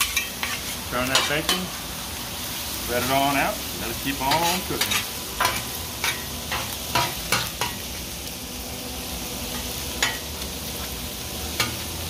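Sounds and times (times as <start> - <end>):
metal spatulas scraping: 0.0 - 1.6
bacon sizzling on a griddle: 0.0 - 12.0.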